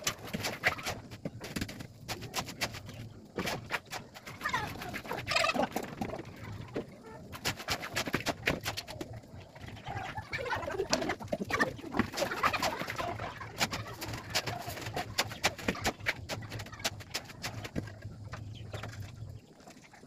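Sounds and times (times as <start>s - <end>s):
birds calling: 2.6s - 7.1s.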